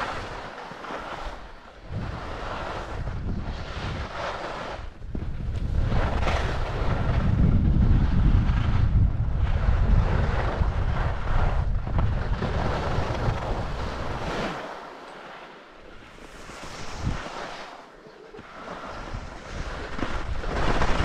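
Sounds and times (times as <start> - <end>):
wind buffeting microphone: 0.0 - 17.7, 18.3 - 21.0
skis hissing over snow: 16.1 - 17.8.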